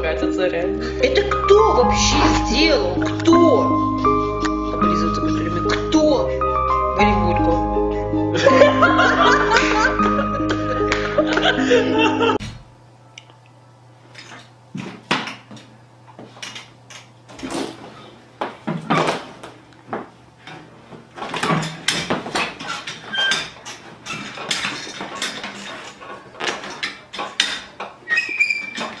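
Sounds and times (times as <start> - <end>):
music: 0.0 - 13.3
chair knocking and scraping on tiles: 14.2 - 16.6, 17.3 - 29.0.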